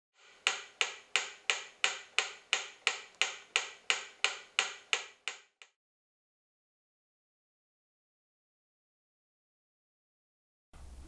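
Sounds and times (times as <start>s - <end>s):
metronome ticking: 0.4s - 5.6s.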